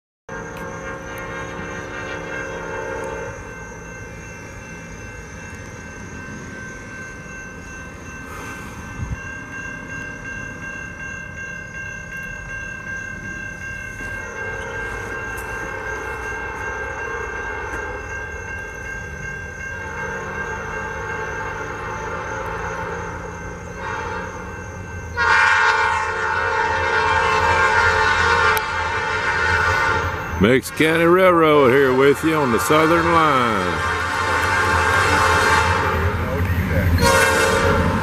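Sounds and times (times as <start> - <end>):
distant locomotive horn: 0.3 - 3.9, 19.8 - 38.0
train rumble: 0.3 - 38.0.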